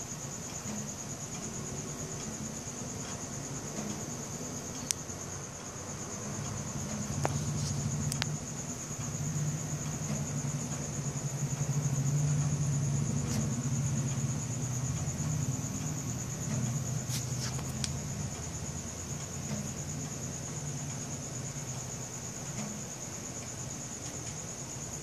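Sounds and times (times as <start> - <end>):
crickets trilling: 0.0 - 25.0
engine humming: 6.2 - 20.3
faint clicks: 6.4 - 8.4.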